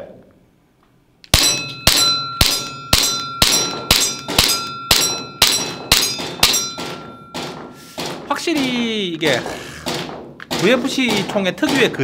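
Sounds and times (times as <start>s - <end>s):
airsoft pistol shots: 1.3s - 6.6s
metallic ring: 1.3s - 8.8s.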